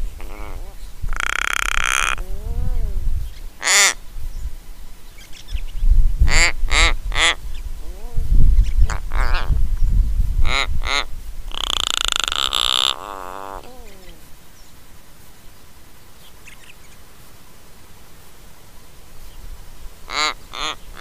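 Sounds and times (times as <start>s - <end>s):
raven creaking calls: 0.0s - 4.0s, 6.3s - 8.2s, 8.8s - 9.6s, 10.4s - 14.3s, 20.0s - 21.0s.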